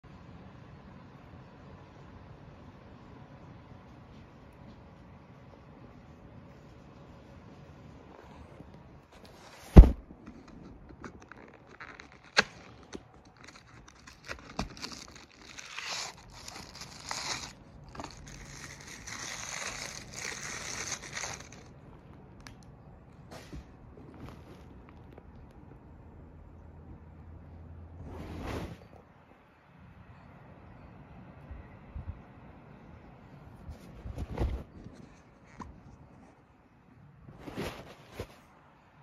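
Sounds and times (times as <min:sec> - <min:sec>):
cardboard box tearing and rustling: 0:09.2 - 0:21.7.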